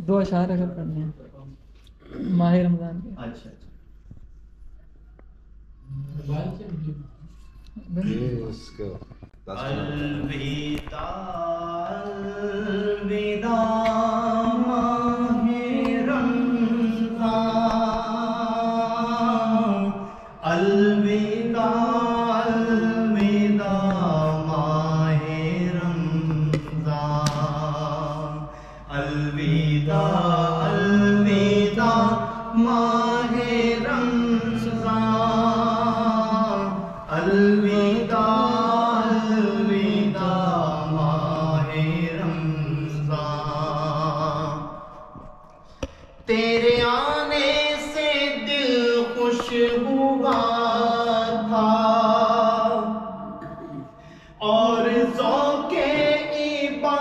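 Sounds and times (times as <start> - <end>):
man singing unaccompanied: 9.5 - 44.8, 46.3 - 53.2, 54.4 - 57.0.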